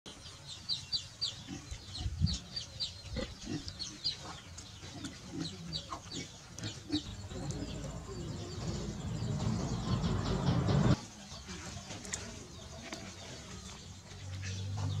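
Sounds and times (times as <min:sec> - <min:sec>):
birds chirping: 0:00.1 - 0:15.0
low rumbling noise: 0:07.1 - 0:11.0.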